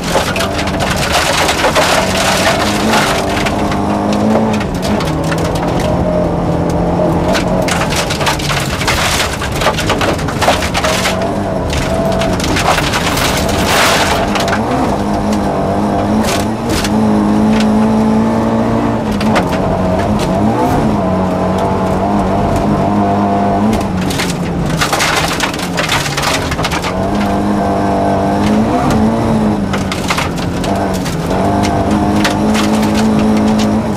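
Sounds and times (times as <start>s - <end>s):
car engine shifting through gears: 0.0s - 33.9s
gravel clattering against underbody: 0.0s - 33.9s.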